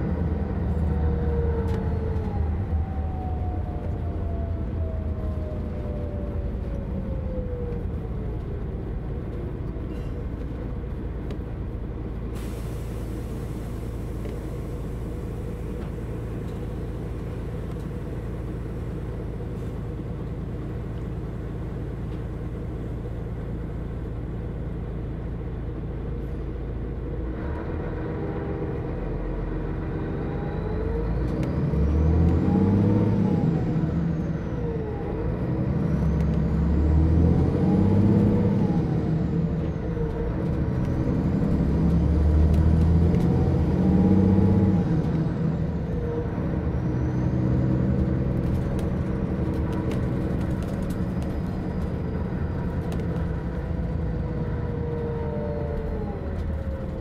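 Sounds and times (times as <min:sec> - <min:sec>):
bus engine idling: 0:00.0 - 0:31.1, 0:43.0 - 0:57.0
bus drivetrain whine: 0:00.0 - 0:57.0
bus engine revving: 0:07.7 - 0:57.0.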